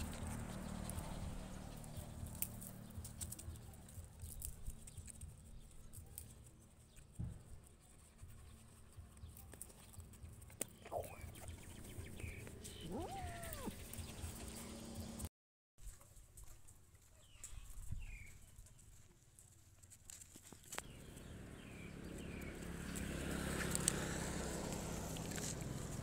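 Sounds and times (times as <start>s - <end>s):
faint clicks and scuffs: 0.0s - 10.9s, 15.8s - 20.9s
puppy whimpering and whining: 12.8s - 14.0s.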